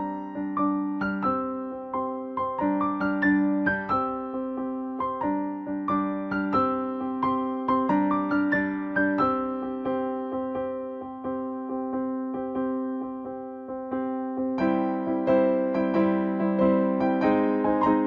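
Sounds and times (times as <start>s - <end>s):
instrumental music: 0.0s - 18.0s.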